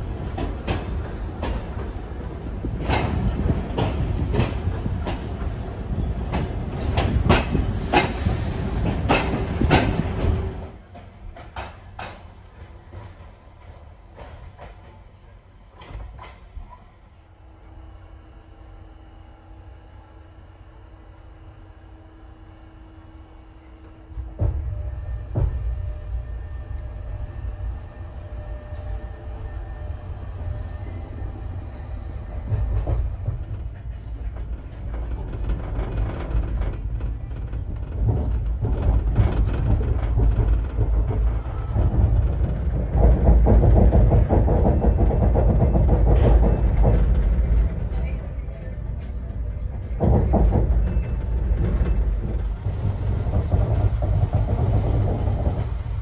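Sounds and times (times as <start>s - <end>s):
train running gear rumble: 0.0s - 56.0s
wheels clicking over rail joints: 32.4s - 56.0s.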